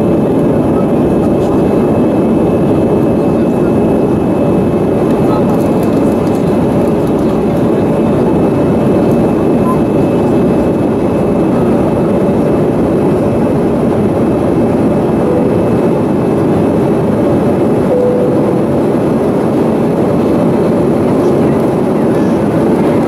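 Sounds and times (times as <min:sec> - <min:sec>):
jet engines rumbling: 0:00.0 - 0:23.0
rushing airflow: 0:06.0 - 0:23.0.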